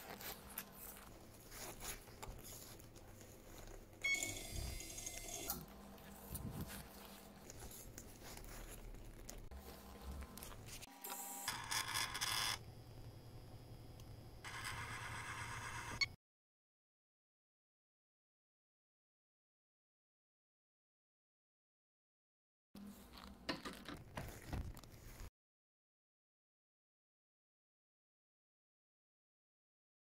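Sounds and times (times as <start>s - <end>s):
faint scraping and handling: 0.0s - 4.8s, 5.4s - 10.9s, 22.8s - 25.3s.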